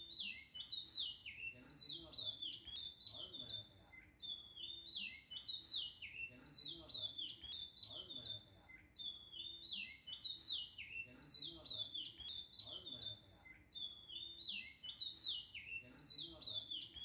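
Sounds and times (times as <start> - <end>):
bird chirps: 0.0 - 17.0.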